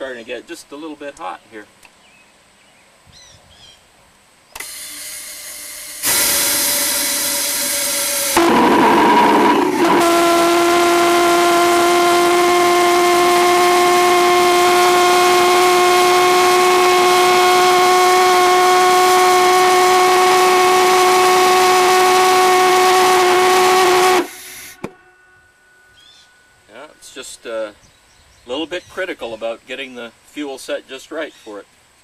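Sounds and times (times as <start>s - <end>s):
pulsejet buzzing drone: 4.7s - 26.7s.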